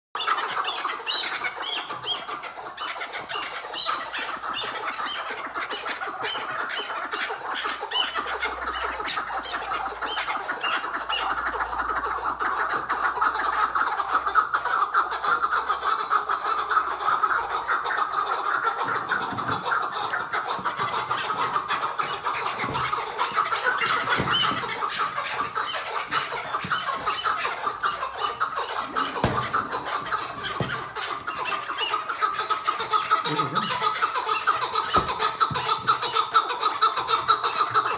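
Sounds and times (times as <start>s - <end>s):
partridge churring chatter: 0.2s - 37.9s.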